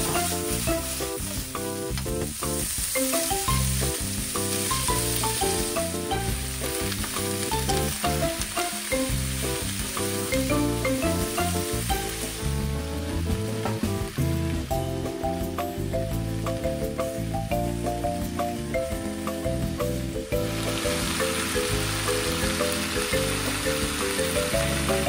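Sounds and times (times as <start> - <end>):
spatula tossing food in pan: 0.0 - 12.6
background music: 0.0 - 25.0
food sizzling in a frying pan: 0.0 - 25.0.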